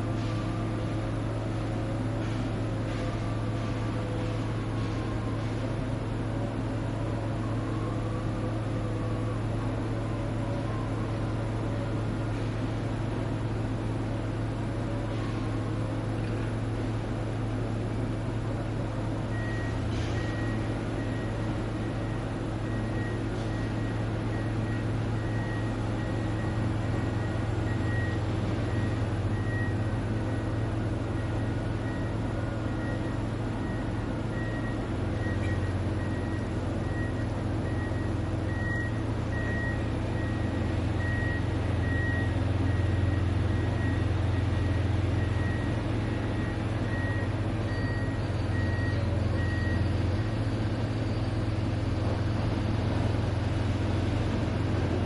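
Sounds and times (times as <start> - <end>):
heavy machinery engines droning: 0.0 - 55.0
reversing alarm beeping: 19.2 - 54.1.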